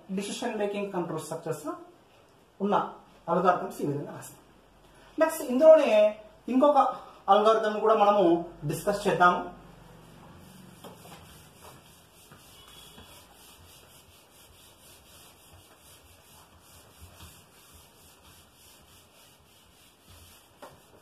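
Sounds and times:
duster rubbing on whiteboard: 9.7 - 21.0.

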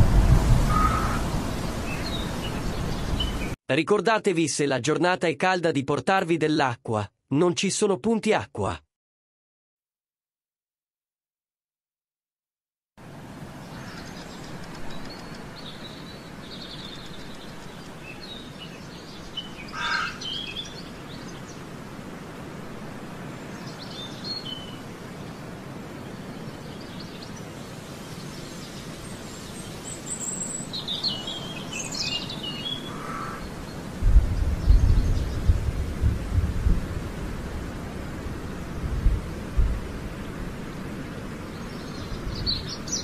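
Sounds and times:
wind buffeting microphone: 0.0 - 3.6, 33.4 - 40.6
small birds chirping: 0.7 - 3.6, 13.6 - 21.8, 26.0 - 35.7, 41.4 - 43.0
steady background hiss: 13.0 - 43.0.

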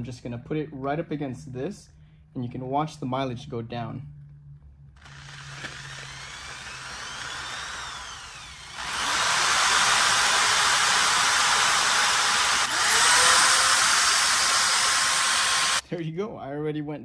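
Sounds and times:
power drill whirring: 5.0 - 15.8.

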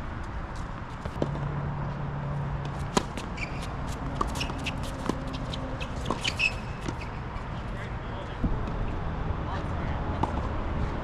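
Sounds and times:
shoes scuffing on court: 2.6 - 7.2
tennis ball bouncing on hard court: 2.6 - 7.4, 10.2 - 10.5.

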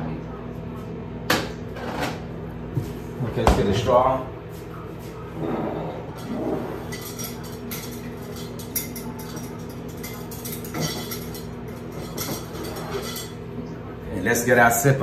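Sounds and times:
utensils and dishes clinking: 5.4 - 13.7.

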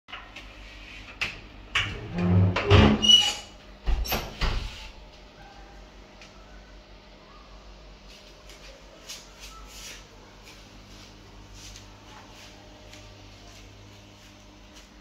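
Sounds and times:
soft scuffing footsteps: 8.0 - 15.0.

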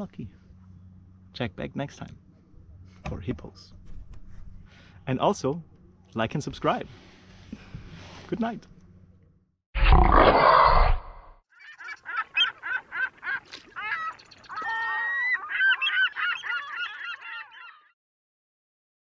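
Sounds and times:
rough animal call: 9.8 - 17.8
bird calls: 11.5 - 18.0.

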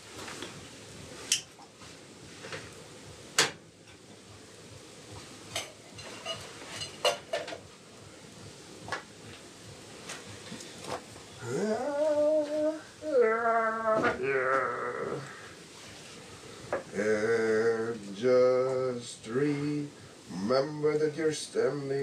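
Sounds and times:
metal pots and utensils clinking: 5.5 - 7.7.

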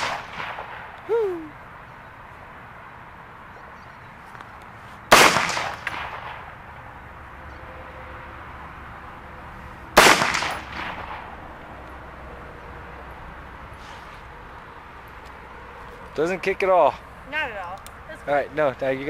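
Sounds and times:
rifle shots with echo: 0.0 - 0.9, 5.1 - 6.5, 10.0 - 11.3.

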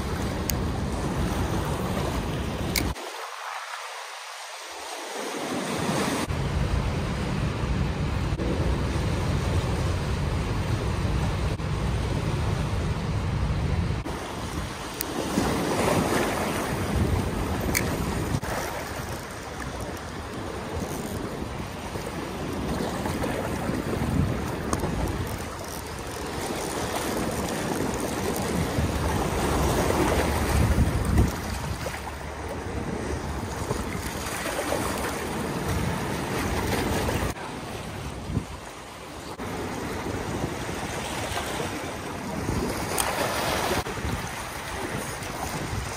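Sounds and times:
river water rushing: 0.0 - 6.6
wind rumble on microphone: 5.8 - 45.9.

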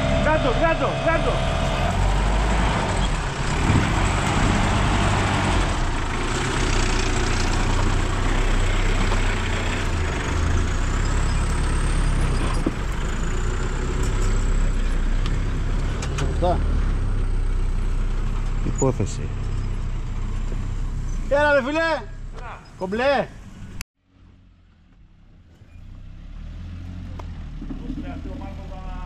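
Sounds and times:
car engine running under load: 0.0 - 21.4
tyres rushing on dirt and stones: 0.0 - 21.8.

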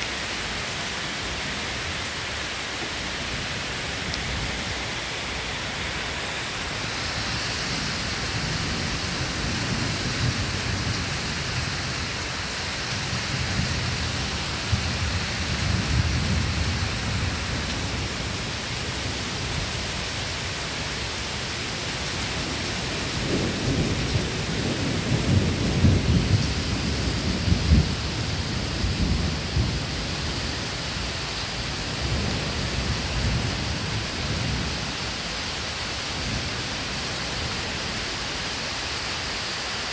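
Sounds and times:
rain hissing: 0.0 - 39.9
thunder rumbling: 22.5 - 30.3, 31.8 - 34.8.

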